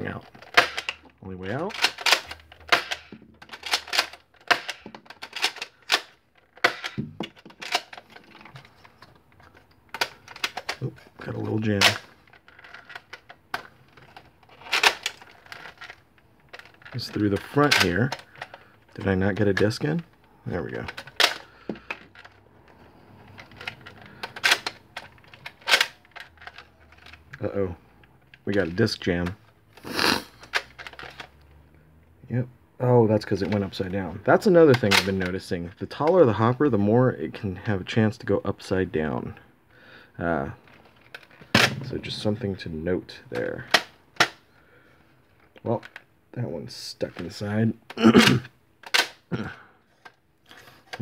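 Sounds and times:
plastic toy blaster clicks and clacks: 0.4 - 1.1, 1.7 - 8.6, 23.4 - 27.2, 48.8 - 49.2.

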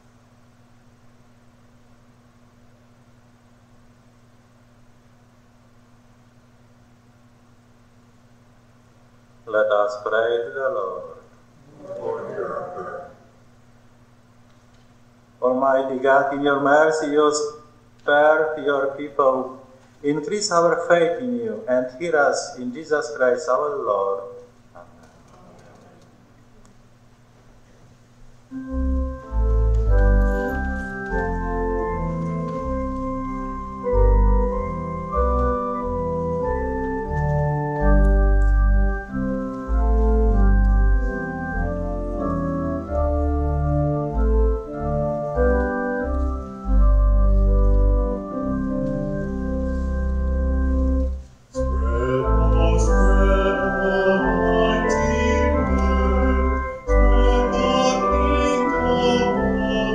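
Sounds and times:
church organ playing hymn: 15.4 - 24.5, 28.5 - 59.9
person singing with vibrato: 51.6 - 59.9.

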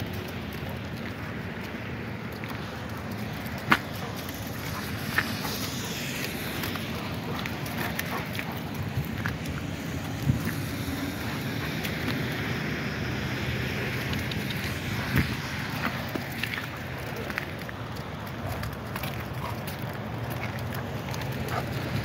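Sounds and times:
road traffic: 0.0 - 22.0
wind on microphone: 7.9 - 16.7.

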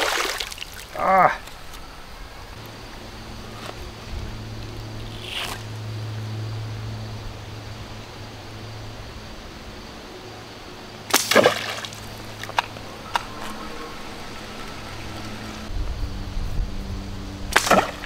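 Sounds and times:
arrow splashing into water: 11.1 - 12.0, 17.5 - 18.0.

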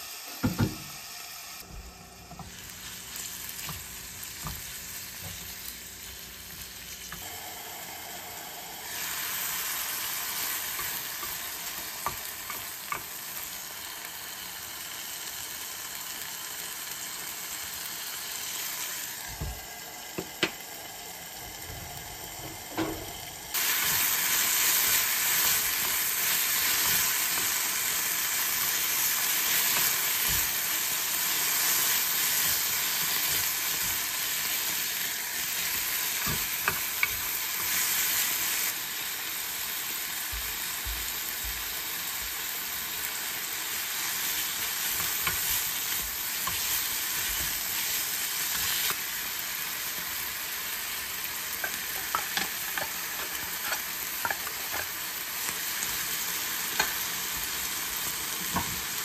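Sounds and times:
kimchi sizzling in a pan: 0.0 - 59.0.

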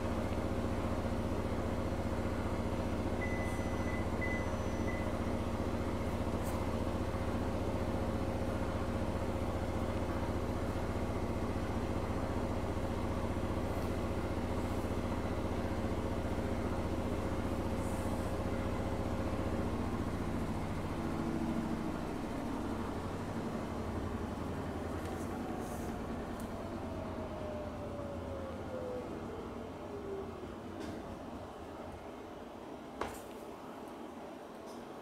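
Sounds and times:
low mechanical hum: 0.0 - 35.0
faint held tone: 3.1 - 5.6.

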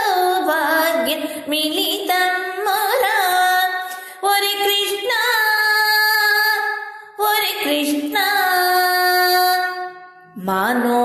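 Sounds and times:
woman singing devotional song: 0.0 - 11.0.

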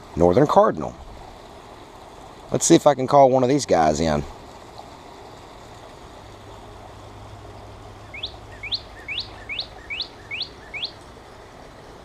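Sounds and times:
bird song from phone speaker: 8.1 - 11.0.

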